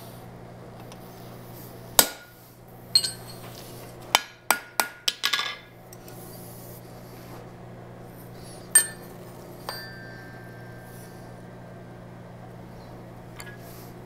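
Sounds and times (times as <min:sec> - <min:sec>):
steady low hum: 0:00.0 - 0:14.0
hammer striking hot steel: 0:02.0 - 0:02.4, 0:08.7 - 0:09.1
hammer clinking on anvil: 0:03.0 - 0:03.4, 0:08.8 - 0:10.9.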